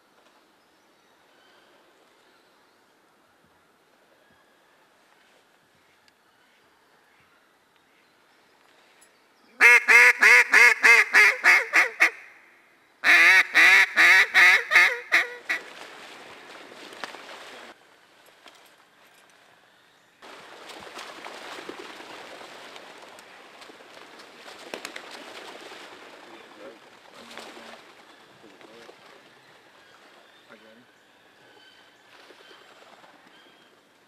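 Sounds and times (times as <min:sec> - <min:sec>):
duck call quacks: 0:09.6 - 0:12.3, 0:13.0 - 0:15.6.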